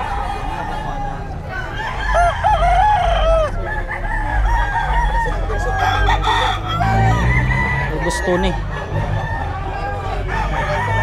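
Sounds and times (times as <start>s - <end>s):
roosters crowing: 0.0s - 11.0s.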